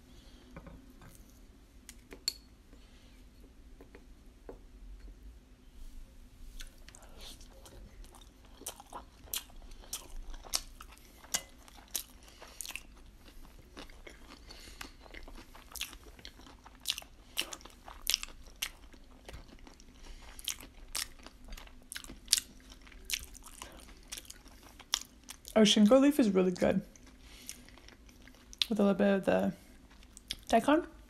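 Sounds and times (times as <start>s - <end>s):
person chewing food: 6.5s - 25.5s, 26.9s - 28.7s, 29.7s - 30.5s.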